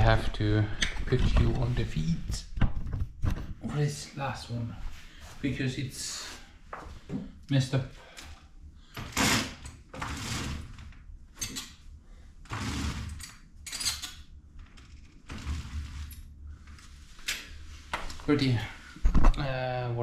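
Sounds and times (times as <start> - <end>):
glass panels scraping along track: 15.1 - 16.3.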